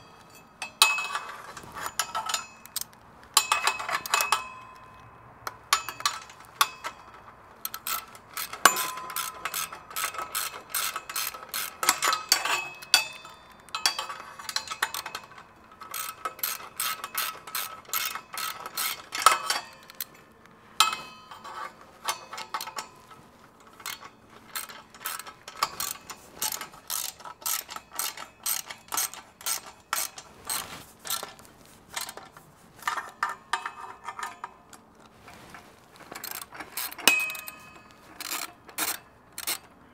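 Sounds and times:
metal clinks: 0.0s - 5.1s, 5.7s - 32.2s, 36.0s - 39.6s
ratchet wrench clicking: 7.6s - 20.1s, 23.6s - 32.2s, 36.1s - 39.7s.

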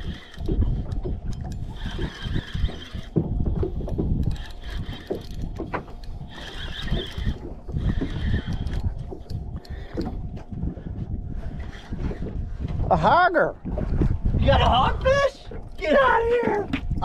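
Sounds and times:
fishing reel whirring: 0.0s - 12.4s
wind rumbling on microphone: 0.0s - 17.0s.

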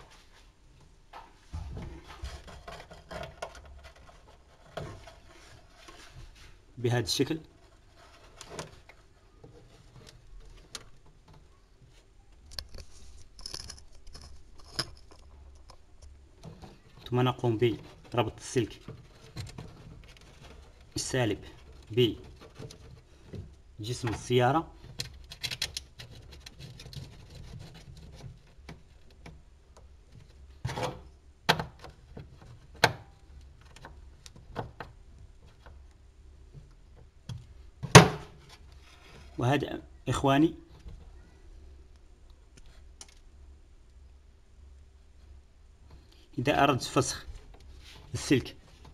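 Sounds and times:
hands rustling wiring on sheet metal: 0.0s - 48.9s
faint rubbing: 1.3s - 12.2s, 37.5s - 39.5s.

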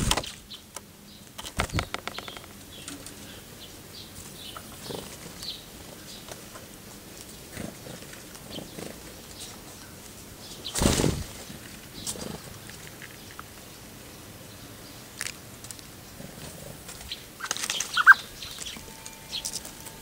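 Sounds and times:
bird wings fluttering: 0.0s - 0.4s, 1.4s - 2.5s, 10.6s - 11.8s, 16.9s - 18.8s
short high bird chirps: 17.9s - 19.6s.

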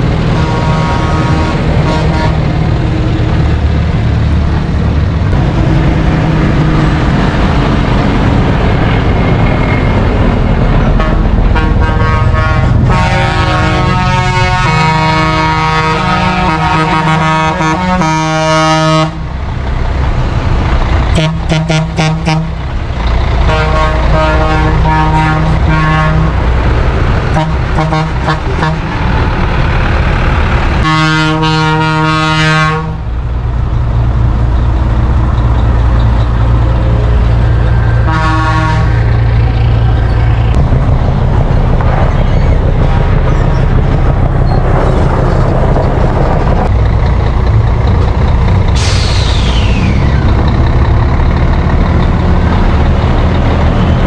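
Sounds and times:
truck diesel engine running: 0.0s - 54.0s
truck air horn: 0.3s - 2.5s, 10.9s - 19.2s, 21.1s - 22.6s, 23.4s - 26.4s, 27.3s - 28.9s, 30.8s - 33.0s, 38.0s - 39.1s.

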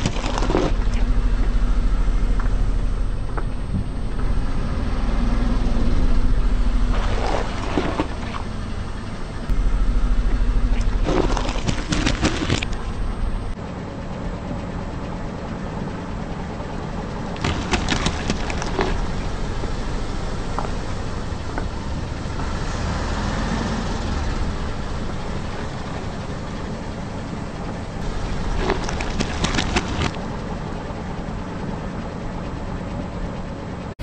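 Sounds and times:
car engine running low: 0.0s - 34.0s.

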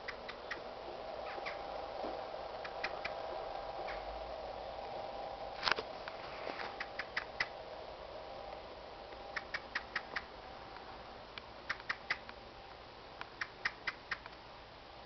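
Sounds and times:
blackbird call notes: 0.0s - 1.7s, 2.6s - 3.2s, 3.8s - 4.1s, 6.7s - 7.6s, 9.3s - 10.4s, 11.6s - 12.4s, 13.3s - 14.4s.

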